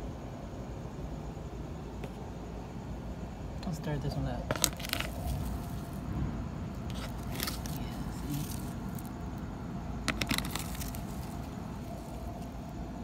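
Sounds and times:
low rumble of city traffic: 0.0 - 13.0
crunching scrapes of compost: 4.5 - 6.2, 6.8 - 9.4, 10.0 - 12.6.

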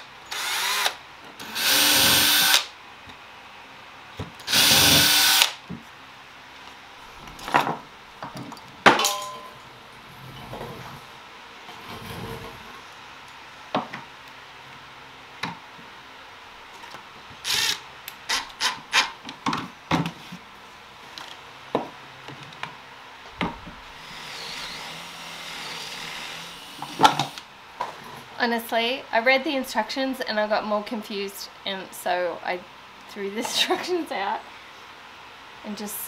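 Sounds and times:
drill boring into wood: 0.3 - 2.7, 4.5 - 5.6, 17.4 - 19.0, 24.0 - 27.4.

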